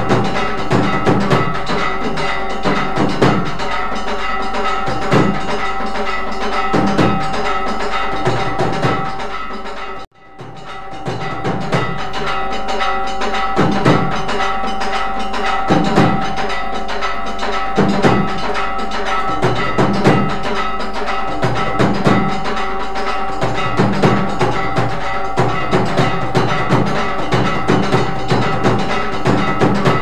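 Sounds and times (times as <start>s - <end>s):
deep drum beat: 0.0s - 3.7s, 4.7s - 5.6s, 6.6s - 7.4s, 8.1s - 9.3s, 10.3s - 12.5s, 13.5s - 14.5s, 15.6s - 16.4s, 17.7s - 22.6s, 23.2s - 30.0s
clicking and ringing percussion: 0.0s - 30.0s.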